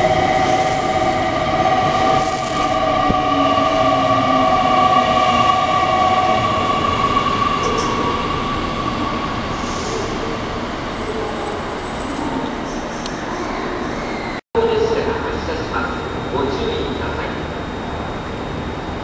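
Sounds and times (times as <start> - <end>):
train rolling and braking: 0.0 - 19.0
high brake squeal: 10.9 - 14.4.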